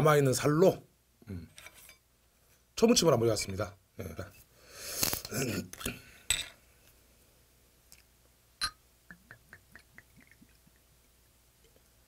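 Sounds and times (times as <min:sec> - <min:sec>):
glass bottle clinking: 0:06.3 - 0:06.6, 0:08.6 - 0:08.8.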